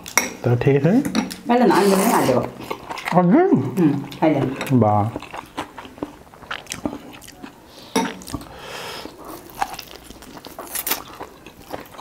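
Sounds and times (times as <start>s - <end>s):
chewing and biting food: 2.5s - 3.3s, 4.0s - 12.0s.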